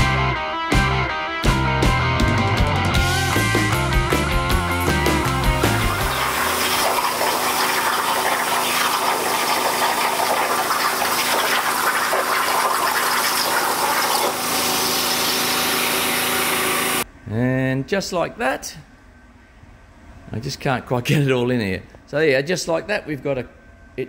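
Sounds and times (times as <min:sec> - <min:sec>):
plasma cutter hissing: 0:06.0 - 0:10.2, 0:12.7 - 0:17.0.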